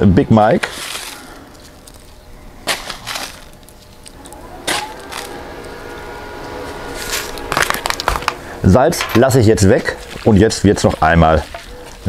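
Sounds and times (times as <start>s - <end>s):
spice mill grinding: 3.0s - 9.3s.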